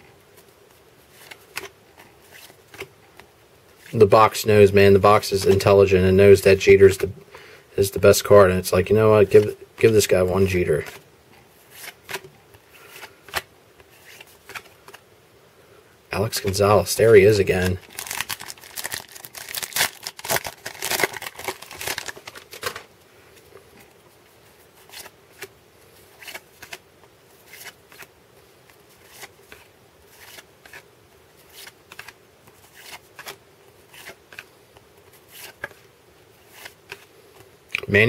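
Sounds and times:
wrapper tearing and crinkling: 0:17.6 - 0:22.9.

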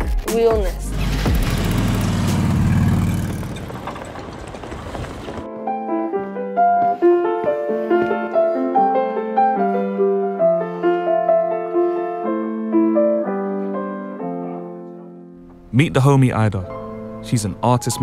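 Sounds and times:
slow piano melody: 0:05.4 - 0:18.0.

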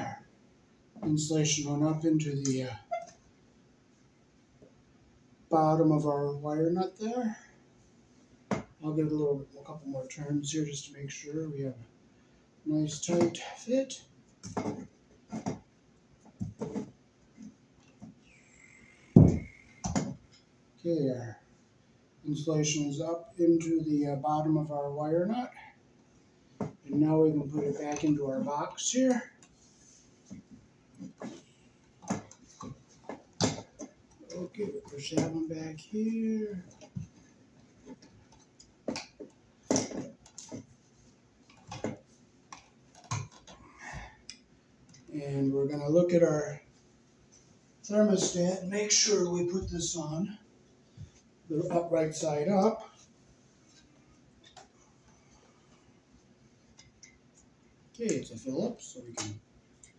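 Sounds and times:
clicks and knocks of wires: 0:37.8 - 0:40.7, 0:41.4 - 0:43.6.

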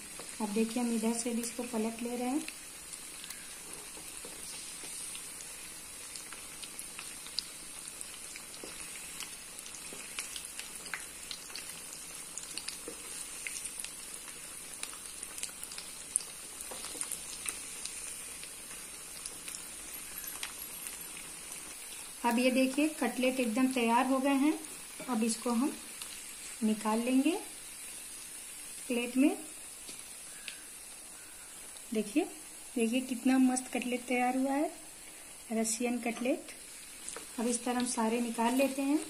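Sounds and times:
food deep-frying in oil: 0:00.0 - 0:39.0.

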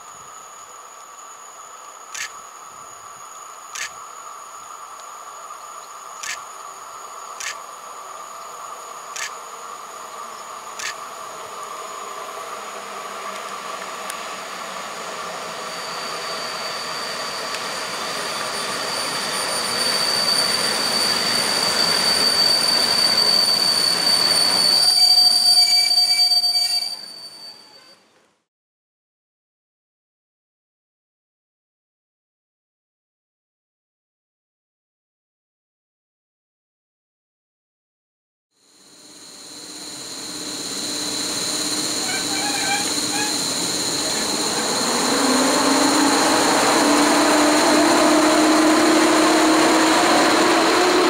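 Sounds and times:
train rolling: 0:02.1 - 0:28.0, 0:38.8 - 0:51.0
wheel and brake squeal: 0:09.1 - 0:28.1, 0:38.8 - 0:51.0.

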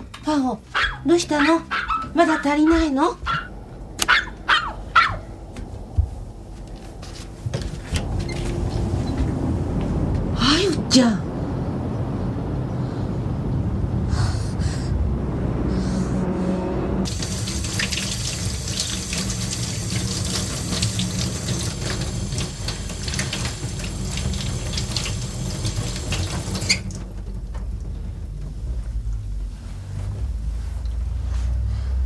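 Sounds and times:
tap water splashing into metal sink: 0:17.1 - 0:27.0.

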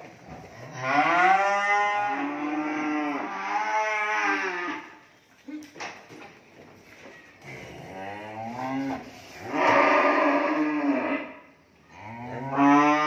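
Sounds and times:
cattle mooing: 0:00.6 - 0:05.0, 0:07.6 - 0:13.0.

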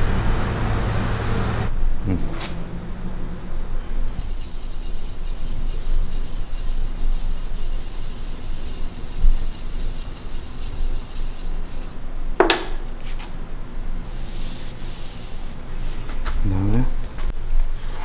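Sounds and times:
sharp metal scrape: 0:04.1 - 0:11.9
hand rubbing sword blade: 0:04.2 - 0:11.9.

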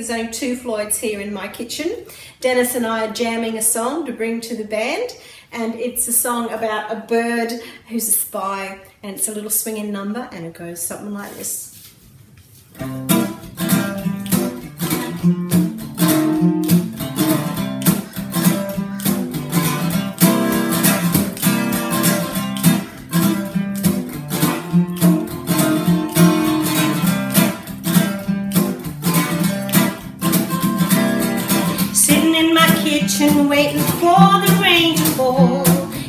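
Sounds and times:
acoustic guitar strumming: 0:12.8 - 0:36.0.

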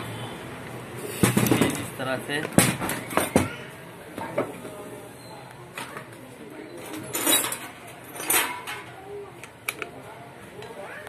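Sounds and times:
metal parts clinking and scraping: 0:06.8 - 0:08.9.

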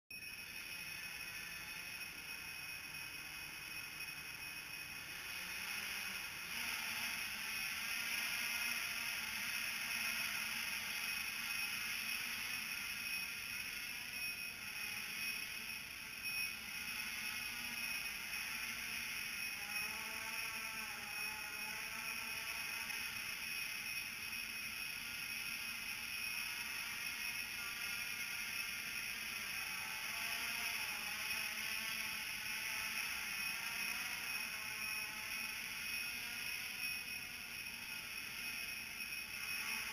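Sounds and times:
drone propellers whirring: 0:00.1 - 0:39.9.

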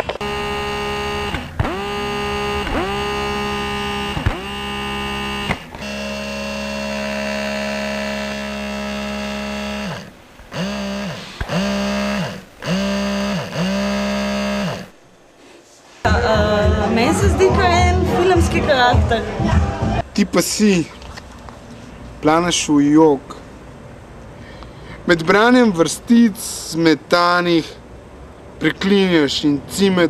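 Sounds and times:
distorted electronic drone music: 0:00.0 - 0:14.9.

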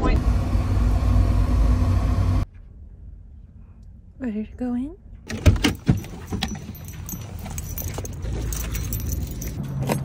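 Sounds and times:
dog collar metal jingling: 0:05.3 - 0:10.0.

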